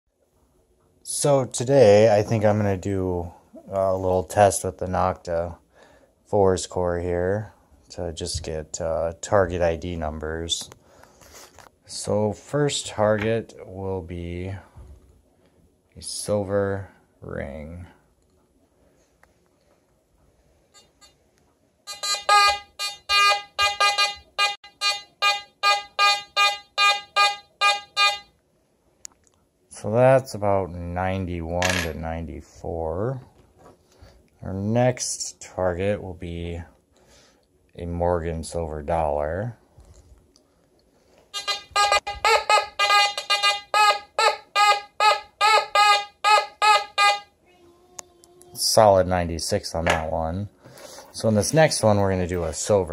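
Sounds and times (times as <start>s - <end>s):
metal detector beeps: 21.9s - 28.3s, 41.4s - 47.3s.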